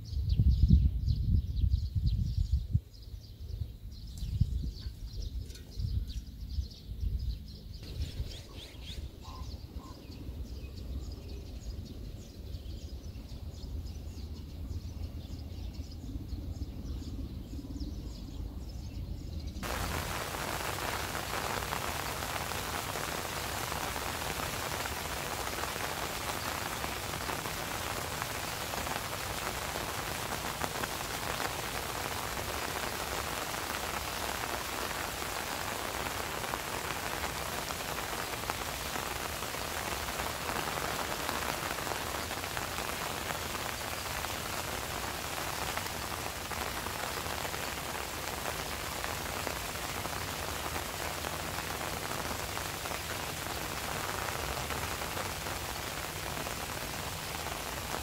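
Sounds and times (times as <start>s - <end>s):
rain falling on water: 19.6s - 58.0s.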